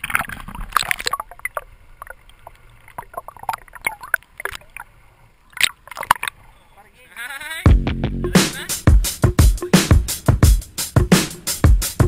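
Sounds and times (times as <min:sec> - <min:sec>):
water splashing and gurgling: 0:00.0 - 0:06.6.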